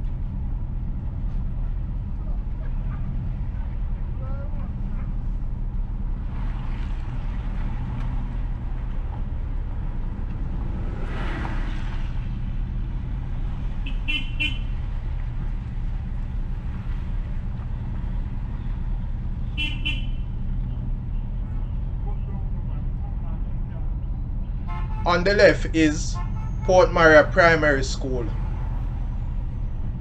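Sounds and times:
car road and engine rumble: 0:00.0 - 0:30.0
vehicle passing: 0:01.1 - 0:30.0
car horn toots: 0:13.8 - 0:14.8, 0:19.5 - 0:20.3, 0:24.6 - 0:27.1.

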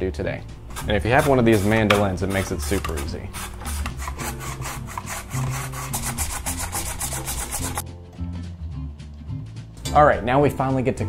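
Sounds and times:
carrot slicing on mandoline: 0:00.7 - 0:07.8.

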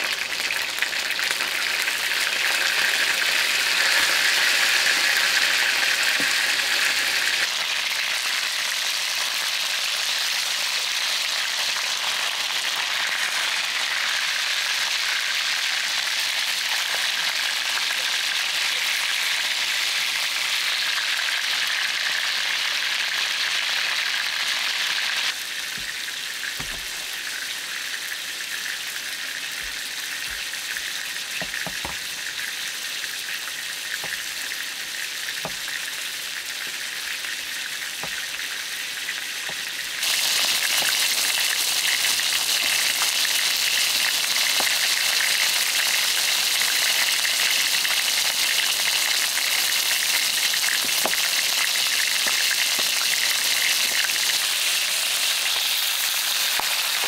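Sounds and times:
chicken sizzling in a pan: 0:00.0 - 0:57.0.

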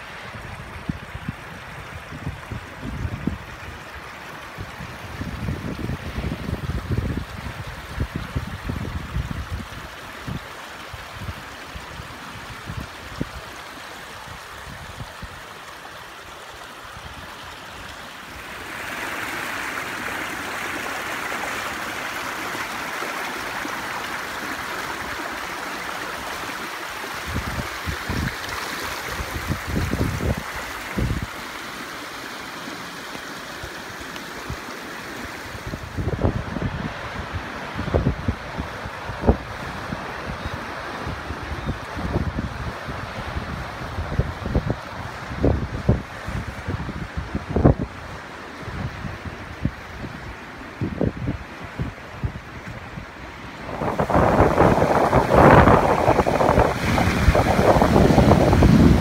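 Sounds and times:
floodwater rushing: 0:00.0 - 0:59.0
wind buffeting microphone: 0:00.2 - 0:13.5, 0:27.1 - 0:31.4, 0:35.4 - 0:59.0.

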